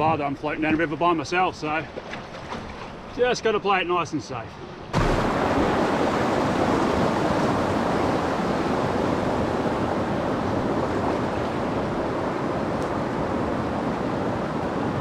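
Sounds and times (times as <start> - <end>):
white water rushing: 3.1 - 15.0.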